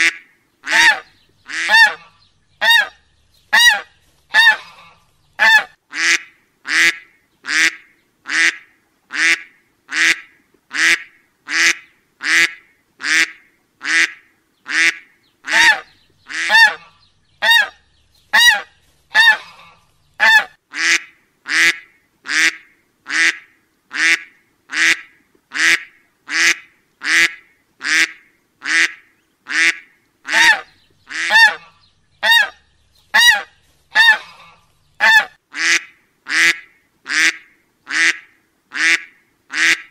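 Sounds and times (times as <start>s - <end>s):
duck quacking: 0.0s - 39.9s.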